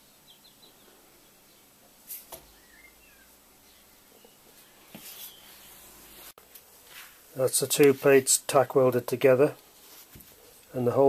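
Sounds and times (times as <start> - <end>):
faint high chirps: 2.4 - 6.3.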